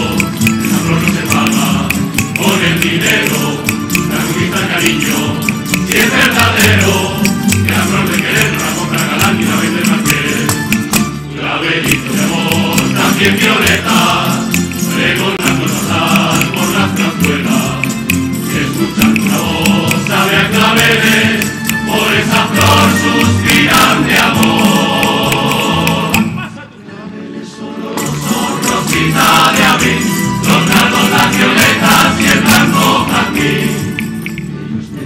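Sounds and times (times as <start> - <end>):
double bass: 0.0 - 26.4, 28.0 - 35.0
strummed guitars: 0.0 - 26.5, 28.0 - 34.9
male chorus singing: 0.0 - 35.0.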